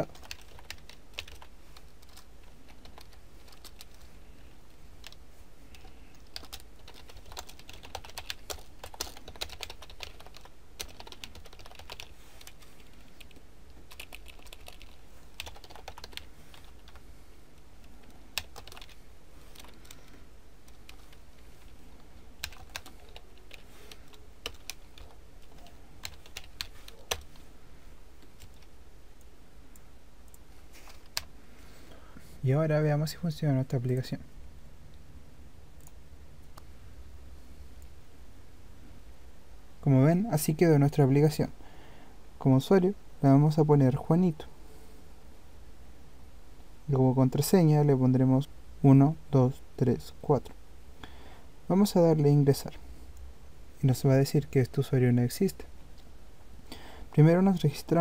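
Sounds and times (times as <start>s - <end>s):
typing on computer keyboard: 0.0s - 4.0s, 5.0s - 17.0s, 18.0s - 20.1s, 22.4s - 27.4s
faint low hum: 0.0s - 58.0s.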